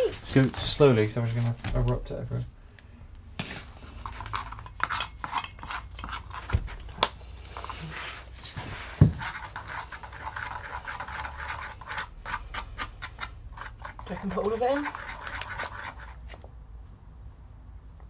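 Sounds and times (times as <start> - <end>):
powder stirred and scraped in bucket: 3.4 - 16.4.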